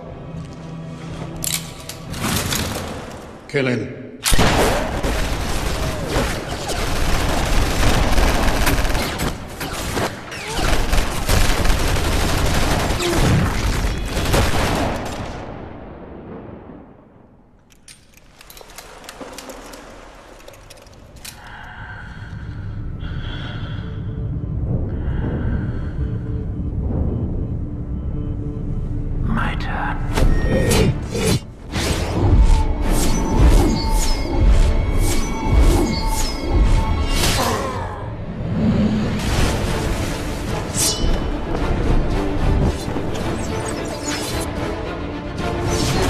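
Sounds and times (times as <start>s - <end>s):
rapid gunfire: 4.4s - 15.4s
low music: 22.3s - 31.6s, 39.2s - 46.0s.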